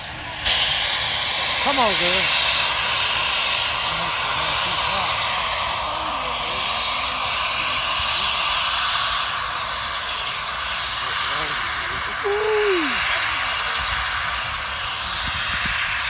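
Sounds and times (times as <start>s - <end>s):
steam locomotive exhaust: 0.0s - 16.0s
faint voices: 3.8s - 15.4s.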